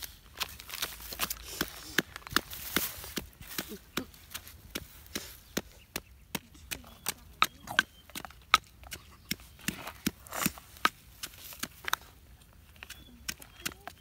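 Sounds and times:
pestle pounding in a mortar: 5.6 - 11.7.

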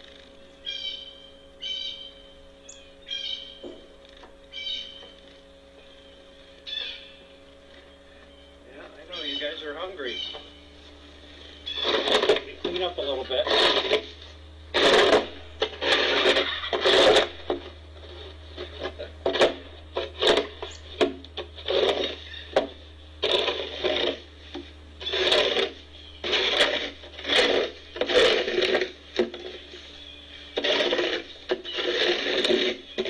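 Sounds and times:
snow shovel scraping snow: 11.2 - 33.0.

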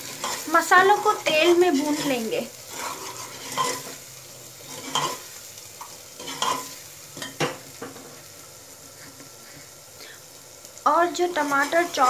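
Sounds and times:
spoon scraping in pot: 0.0 - 4.0, 4.6 - 5.3, 6.2 - 7.4
steady sizzle: 0.0 - 12.0.

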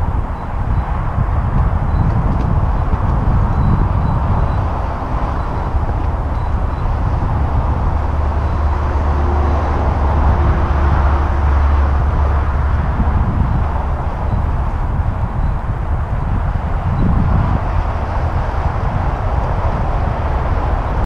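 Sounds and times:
bicycle tyre noise on pavement: 0.0 - 21.0
wind rushing over microphone: 0.0 - 21.0.

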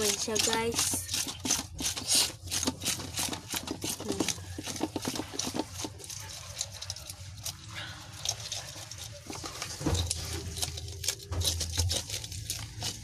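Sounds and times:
knife scraping fish scales: 0.0 - 13.0.

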